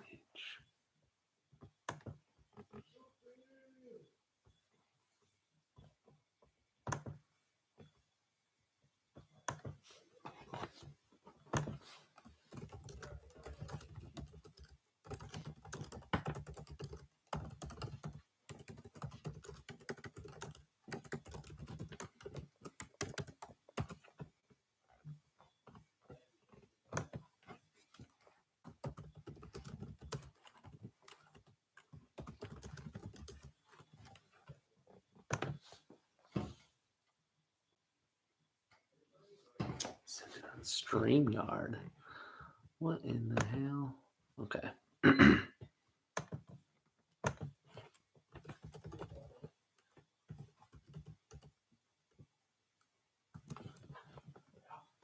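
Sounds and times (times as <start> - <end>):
typing on computer keyboard: 12.4 - 24.3, 27.9 - 34.3, 46.2 - 46.6, 47.2 - 51.6, 53.4 - 54.2.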